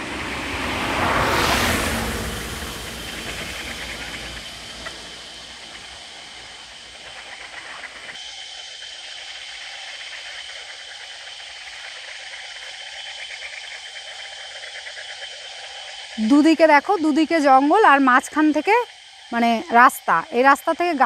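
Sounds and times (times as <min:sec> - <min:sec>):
low vehicle rumble: 0:00.0 - 0:08.1
insect chorus buzzing: 0:00.0 - 0:21.0.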